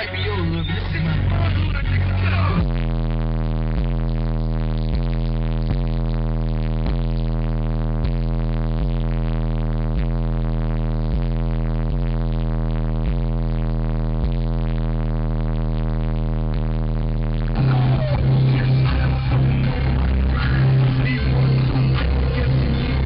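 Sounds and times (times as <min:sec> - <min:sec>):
loud deep bass line: 0:00.0 - 0:23.0.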